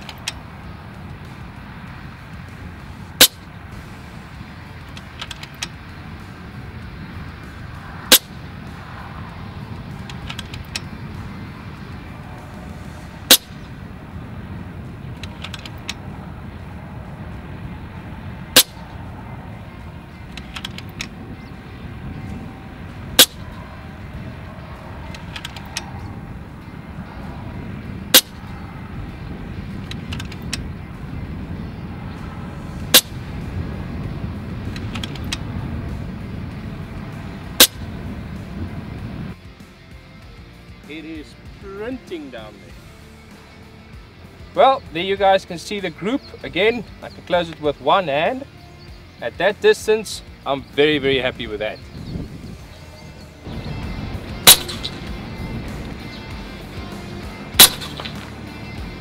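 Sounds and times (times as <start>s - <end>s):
steady low rumble: 0.0s - 59.0s
air rifle shot crack: 8.1s - 8.4s, 13.2s - 13.8s, 18.5s - 18.9s, 23.2s - 23.7s, 28.1s - 28.5s, 32.8s - 33.4s, 37.6s - 37.9s, 54.4s - 55.8s, 57.6s - 58.5s
rifle action clicks: 15.2s - 16.0s, 20.3s - 21.1s, 25.1s - 25.9s, 57.6s - 58.3s.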